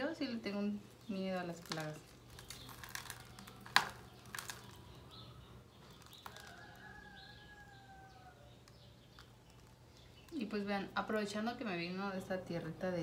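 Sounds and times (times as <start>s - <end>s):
soil rustling and clicking: 1.0s - 7.2s.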